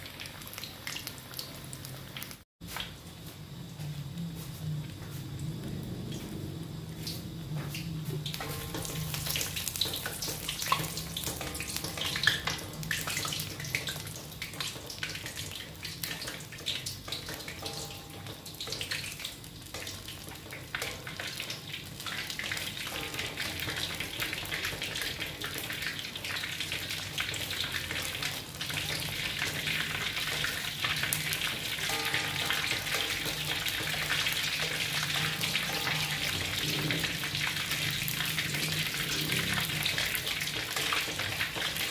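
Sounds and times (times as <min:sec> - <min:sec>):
meat deep-frying in oil: 0:00.0 - 0:03.8, 0:04.6 - 0:41.9.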